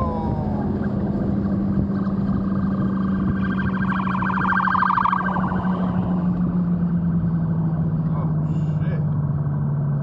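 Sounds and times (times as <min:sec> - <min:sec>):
siren warbling: 0:00.0 - 0:06.6
car engine drone: 0:00.0 - 0:10.0
wind and road noise: 0:00.0 - 0:10.0.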